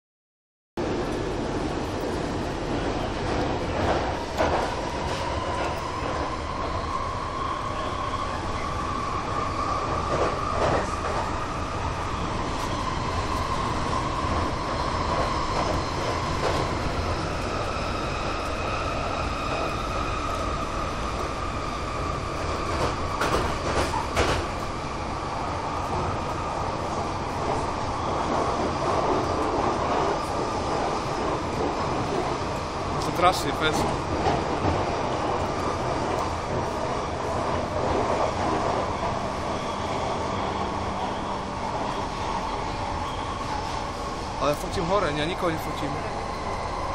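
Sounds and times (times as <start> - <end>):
train rumble: 0.8 - 46.9
track clacks: 22.6 - 24.7.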